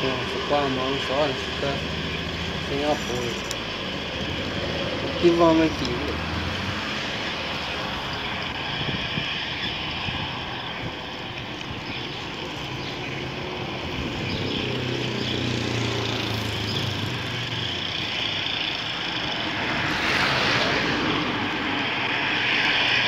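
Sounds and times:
car tyres rushing past: 0.0 - 11.3, 12.0 - 23.0
bicycle rolling on pavement: 0.0 - 23.0
car engine droning: 0.0 - 23.0
wind on microphone: 6.1 - 15.0.

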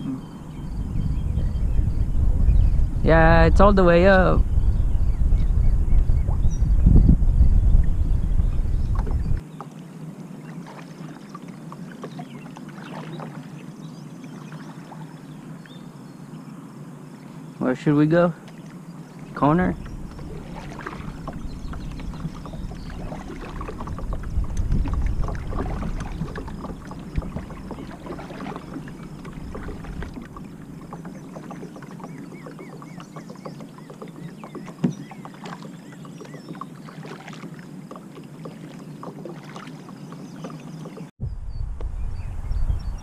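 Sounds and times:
low rumble: 0.0 - 9.4, 41.2 - 43.0
water sloshing along kayak hull: 5.1 - 41.2
small splashes: 8.9 - 15.8, 18.4 - 41.1.

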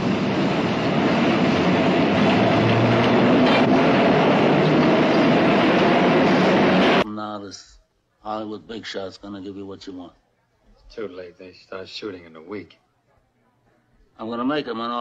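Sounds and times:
subway train wheels rumbling on rails: 0.0 - 7.0.

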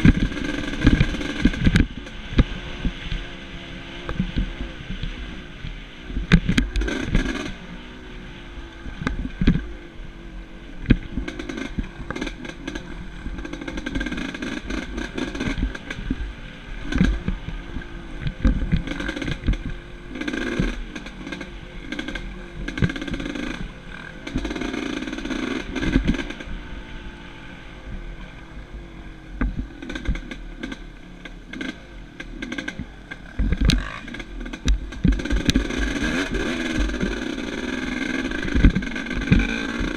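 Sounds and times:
dirt bike engine revving: 0.0 - 39.9
sharp knocks and clatter: 29.4 - 39.9.

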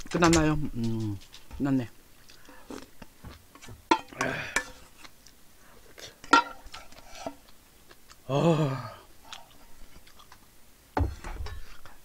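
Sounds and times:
person chewing: 2.2 - 10.5.

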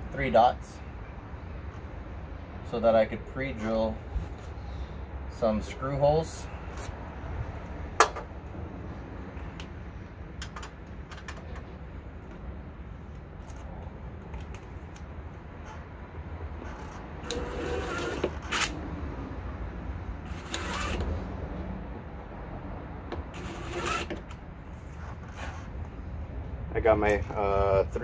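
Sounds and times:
power drill running: 17.2 - 18.8, 20.3 - 21.1, 23.3 - 24.2.

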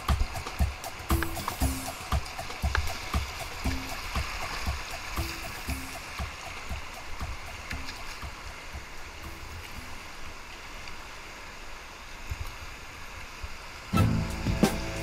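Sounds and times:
loud music: 0.0 - 4.2, 14.0 - 15.0
paddle strokes splashing: 0.0 - 15.0
river water rushing: 0.0 - 15.0.

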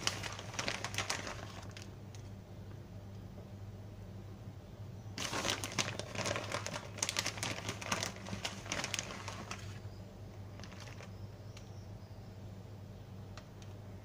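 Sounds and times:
plastic bag crinkling: 0.0 - 2.3, 5.2 - 9.9, 10.5 - 11.2.

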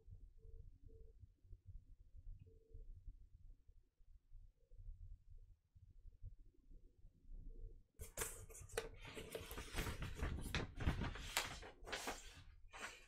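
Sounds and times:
stiff paper rustling and crinkling: 8.0 - 13.0.

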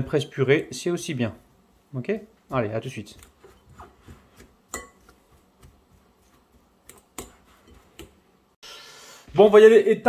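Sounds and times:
fork mashing potatoes: 2.5 - 8.4.

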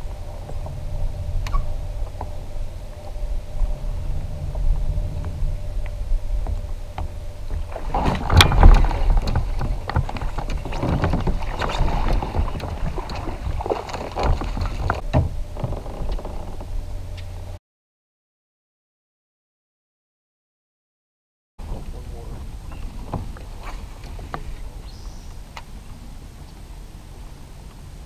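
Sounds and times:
fish splashing and thrashing: 5.6 - 15.9.

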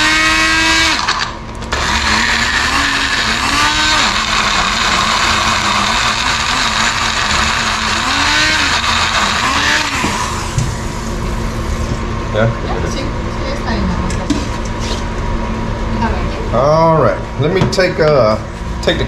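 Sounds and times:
blender motor running: 0.0 - 11.9.

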